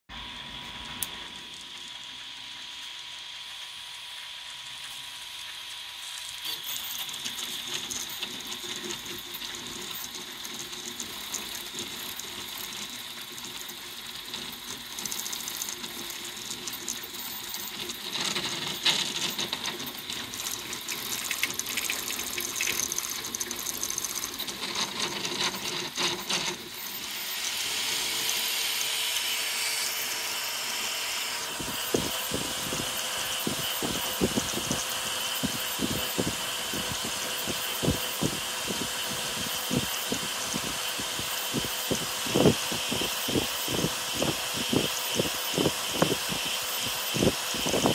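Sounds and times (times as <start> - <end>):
cooling fan whine: 0.1 - 47.9
stepper motors buzzing and chattering: 0.2 - 47.9
steady hum: 14.8 - 47.9.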